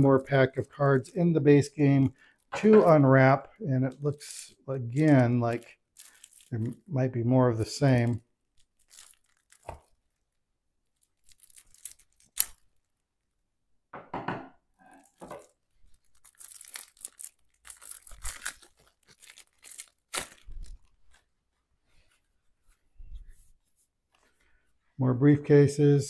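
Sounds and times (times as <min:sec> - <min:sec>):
plastic wrapping crinkling: 0:01.9 - 0:06.9, 0:07.7 - 0:13.1, 0:14.9 - 0:21.6.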